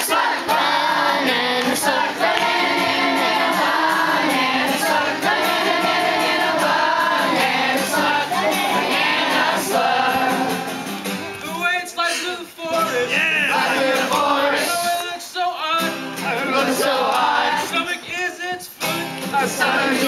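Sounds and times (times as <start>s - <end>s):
group singing in chorus: 0.0s - 11.1s, 13.2s - 15.0s, 16.2s - 18.1s, 18.8s - 20.0s.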